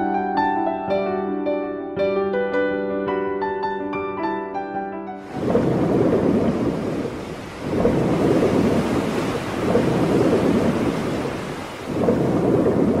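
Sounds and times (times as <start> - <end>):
ocean waves surging: 5.2 - 13.0.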